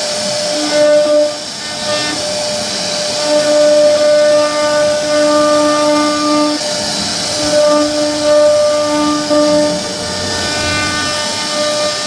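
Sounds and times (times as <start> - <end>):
router spindle whining: 1.4 - 12.0
low tone: 8.2 - 12.0.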